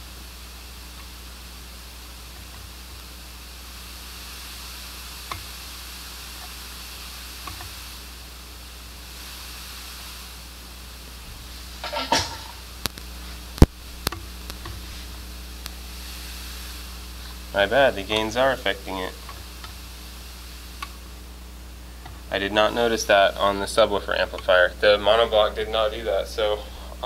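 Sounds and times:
high-pitched amplifier hiss: 0.0s - 27.0s
low steady hum: 0.0s - 27.0s
sharp clicks and knocks: 11.8s - 14.9s.

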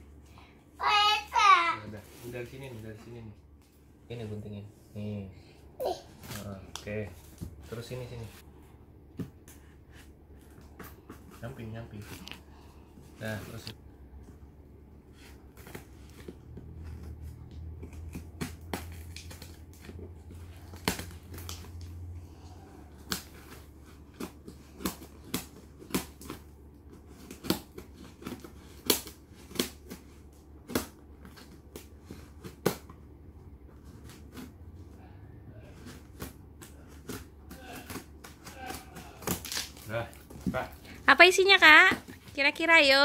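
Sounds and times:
scissors snipping packing tape: 35.9s - 39.9s.

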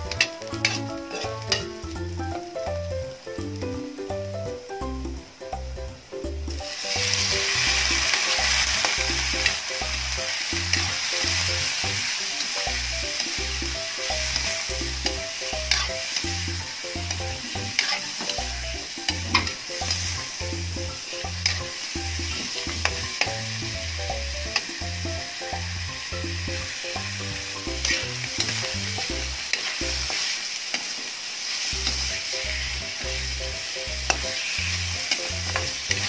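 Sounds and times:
spatula scraping a pan: 0.0s - 1.8s, 6.8s - 20.4s, 21.1s - 23.5s, 27.6s - 32.9s, 34.0s - 36.0s
food sizzling in a wok: 0.0s - 36.0s.

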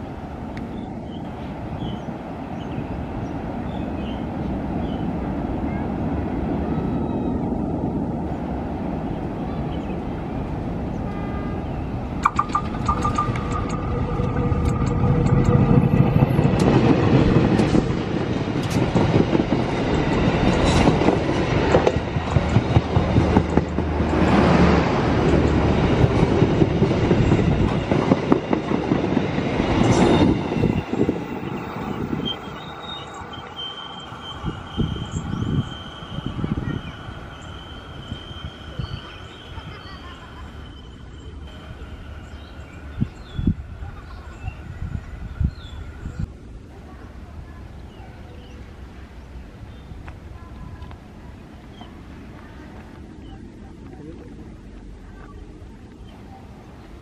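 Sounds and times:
locomotive engine rumble: 4.4s - 57.0s
train wheels clattering over rails: 12.2s - 36.0s.

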